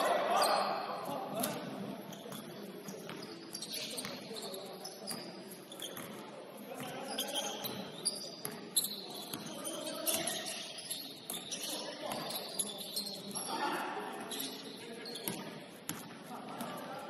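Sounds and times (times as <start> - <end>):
indistinct echoing voices: 0.0 - 3.1, 11.5 - 17.0
sneakers squeaking: 0.0 - 17.0
basketball bouncing on court: 1.4 - 4.3, 5.9 - 6.2, 6.8 - 10.6, 15.2 - 17.0.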